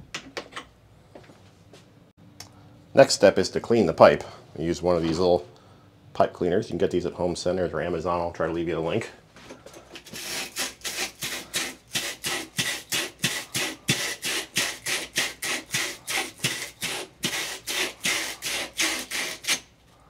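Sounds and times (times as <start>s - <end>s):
wire brush scraping copper pipe: 10.0s - 19.7s.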